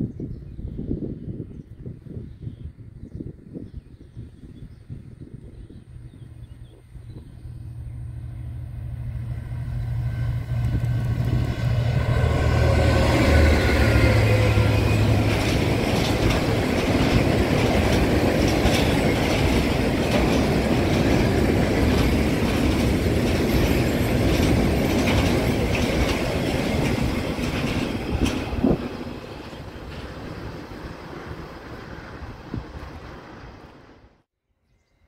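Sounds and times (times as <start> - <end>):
diesel locomotive engine hum: 4.2 - 34.3
freight train rumbling past: 4.2 - 34.3
wheels clickety-clack: 14.7 - 30.7.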